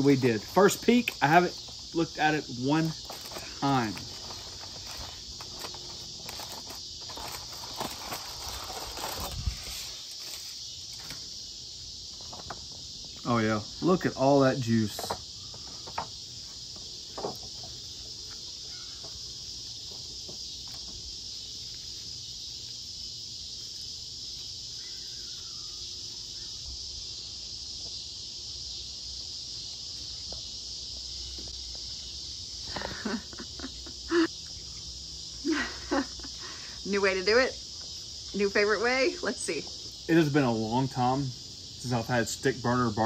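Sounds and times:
insects chirring: 0.0s - 43.0s.

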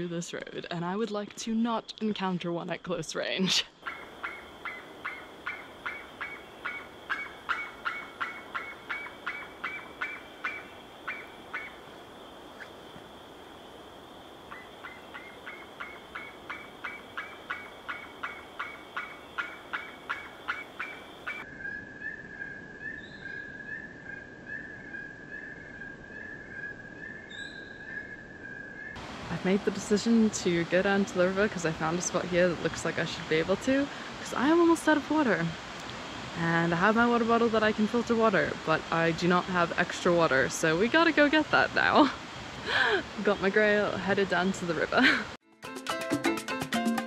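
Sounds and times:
bird gobbling calls: 3.8s - 12.8s, 14.5s - 28.9s.

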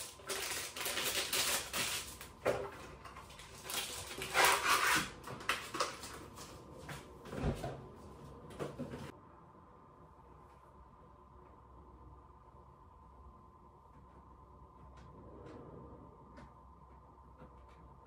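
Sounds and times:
cardboard packaging rustling: 0.0s - 6.8s.

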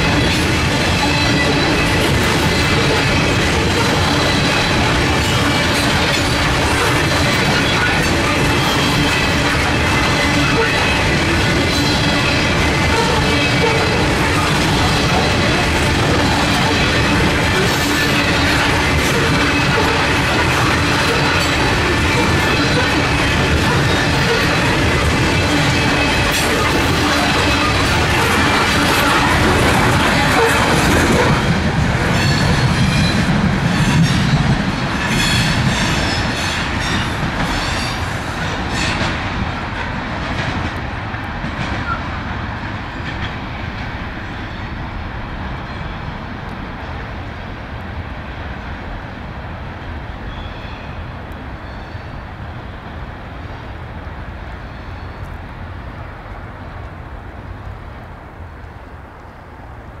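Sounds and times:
train wheels clicking over rail joints: 0.0s - 44.0s
train wheels squealing: 0.1s - 29.4s, 32.1s - 34.4s, 35.0s - 39.1s, 50.2s - 52.3s, 54.6s - 55.4s.

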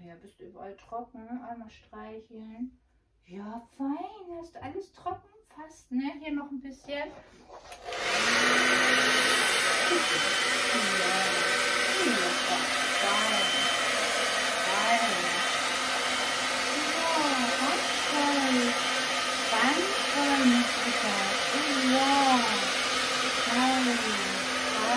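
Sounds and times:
hair dryer running: 7.7s - 24.9s.

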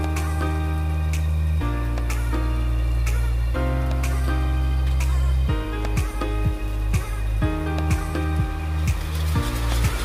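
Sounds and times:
background music with beat: 0.0s - 10.0s.

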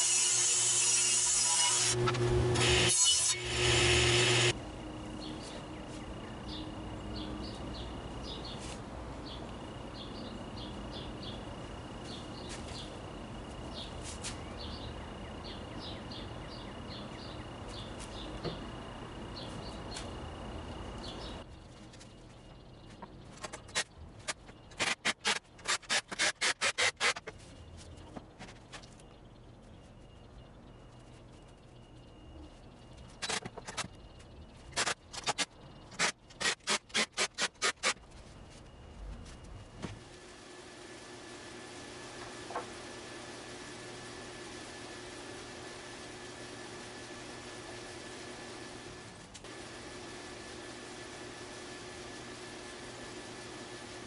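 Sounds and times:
table saw ripping wood: 0.0s - 4.5s
steady background hum: 0.1s - 54.0s
nail gun driving nails: 24.8s - 27.3s, 36.0s - 38.0s.

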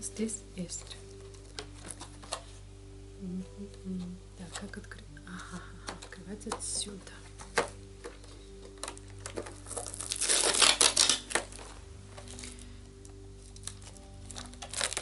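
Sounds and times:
plastic film tearing and crinkling: 0.8s - 2.6s, 7.3s - 15.0s.

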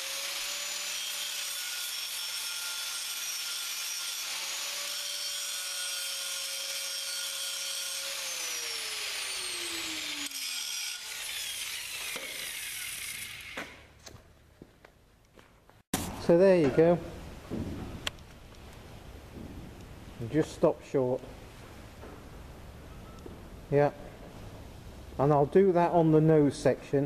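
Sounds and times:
angle grinder grinding steel: 0.0s - 13.9s.

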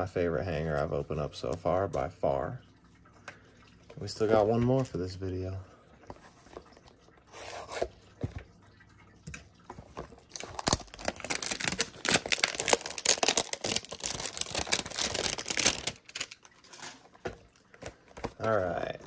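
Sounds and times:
plastic wrapping crinkling: 10.1s - 18.6s.

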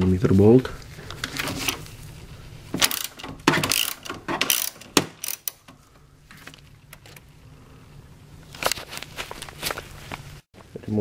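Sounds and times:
socket ratchet clicking: 2.8s - 5.8s.

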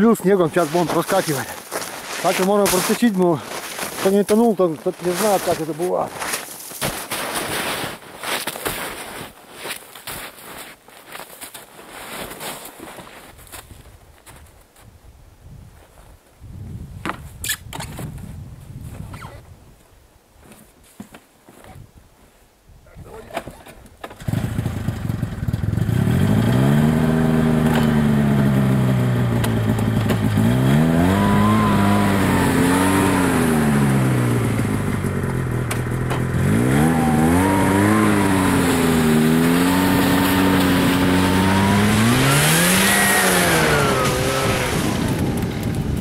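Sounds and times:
snowmobile engine revving: 24.2s - 46.0s.

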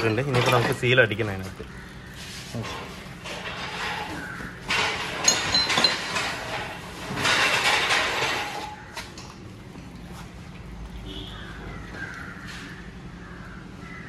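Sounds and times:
workshop clatter: 0.0s - 14.0s
crows cawing: 1.5s - 2.6s, 3.8s - 4.7s, 11.1s - 14.0s.

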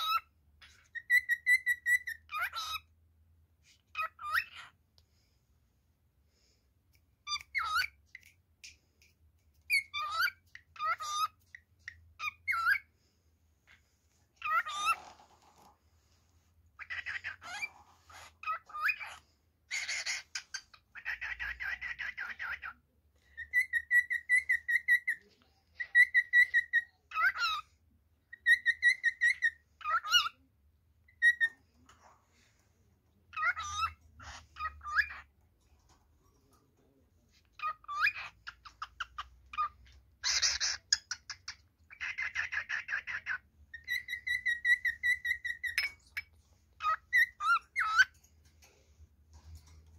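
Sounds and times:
cockatiel whistling and warbling: 0.0s - 2.9s, 3.9s - 4.7s, 7.2s - 8.3s, 9.7s - 12.9s, 14.4s - 15.2s, 16.8s - 27.6s, 28.3s - 30.4s, 33.3s - 35.3s, 37.6s - 48.1s.

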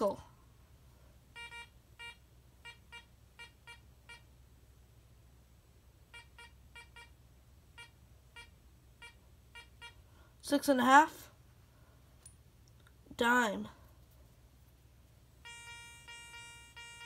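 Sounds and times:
metal detector beeping: 1.4s - 4.3s, 6.1s - 7.2s, 7.8s - 10.0s, 15.4s - 17.0s.

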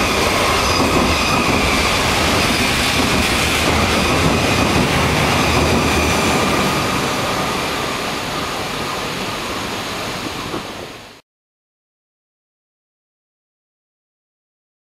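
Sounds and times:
faint ringing from rails: 0.0s - 11.2s
train wheels rumbling on rails: 0.0s - 11.2s.

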